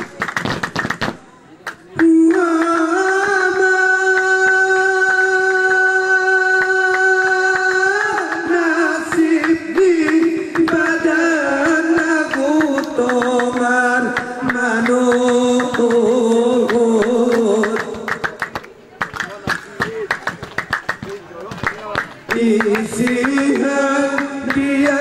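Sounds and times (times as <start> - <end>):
sharp hand claps: 0.0 - 3.4, 4.1 - 5.2, 6.6 - 25.0
person singing: 1.9 - 18.3, 22.3 - 25.0.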